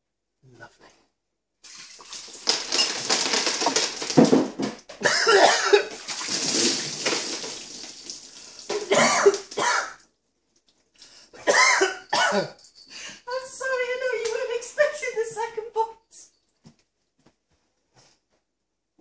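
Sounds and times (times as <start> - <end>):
water pouring and splashing: 1.6 - 4.8, 5.8 - 9.6.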